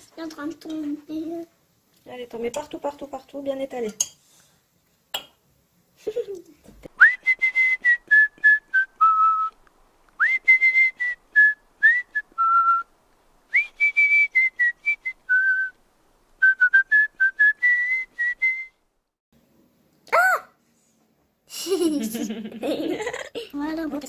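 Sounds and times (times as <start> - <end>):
person whistling a tune: 7.0 - 9.6, 10.2 - 12.9, 13.5 - 15.8, 16.4 - 18.8.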